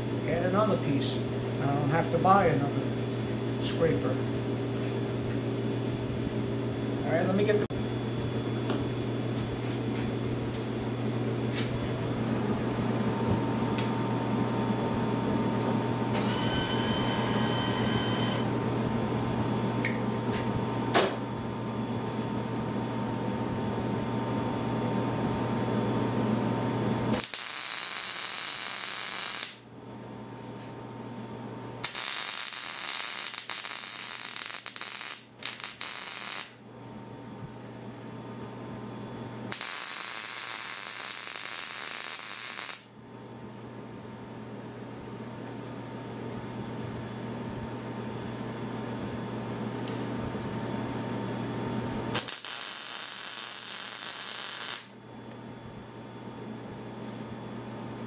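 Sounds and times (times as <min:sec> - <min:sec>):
welder hum: 0:12.5 - 0:18.6, 0:27.1 - 0:29.7, 0:31.8 - 0:36.6, 0:39.5 - 0:42.9, 0:52.1 - 0:55.0
welding arc hiss and crackle: 0:27.1 - 0:29.7, 0:31.8 - 0:36.6, 0:39.5 - 0:42.9, 0:52.1 - 0:55.0.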